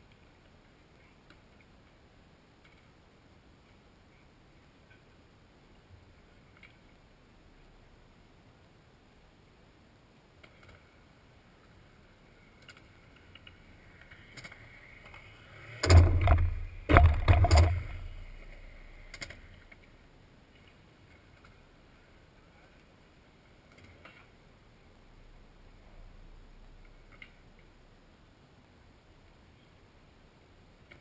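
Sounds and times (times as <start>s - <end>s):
skateboard wheel clicks: 12.5s - 19.9s
skateboard hitting ledge: 15.6s - 18.6s.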